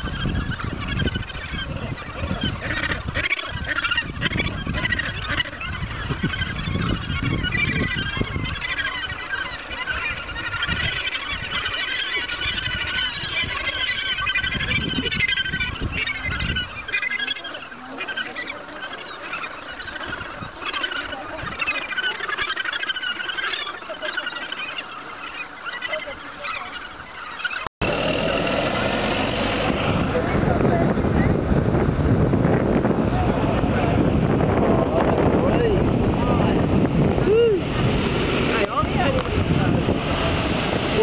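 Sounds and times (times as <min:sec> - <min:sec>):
wind rumble on microphone: 0:00.0 - 0:22.1, 0:27.8 - 0:41.0
gannets honking: 0:00.0 - 0:31.5.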